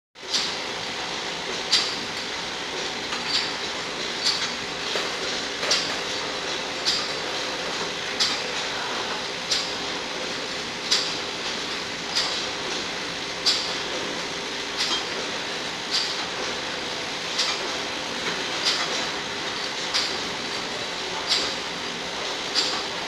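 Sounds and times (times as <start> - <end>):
machine clicking: 1.5 - 8.6, 10.8 - 12.8, 13.4 - 15.3, 17.3 - 21.6, 22.5 - 23.0.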